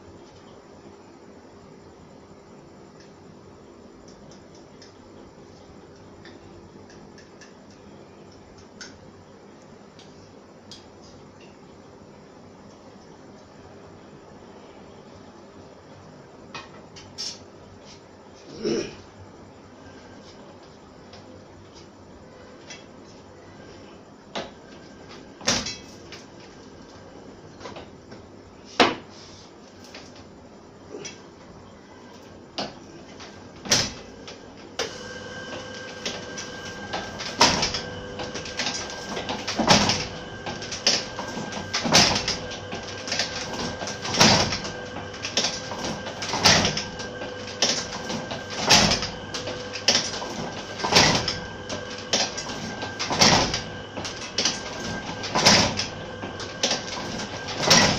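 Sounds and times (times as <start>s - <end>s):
steady machine hum: 0.0s - 28.8s, 29.4s - 57.9s
machine knocks and clicks: 35.6s - 57.9s.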